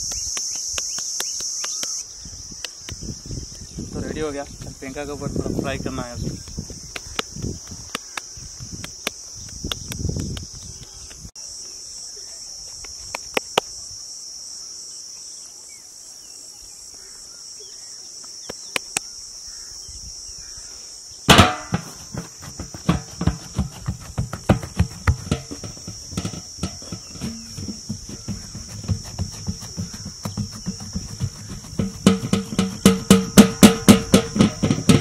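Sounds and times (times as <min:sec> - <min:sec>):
insects chirring: 0:00.0 - 0:35.0
dough thumping on metal tray: 0:21.3 - 0:35.0
hands patting dough: 0:21.7 - 0:35.0.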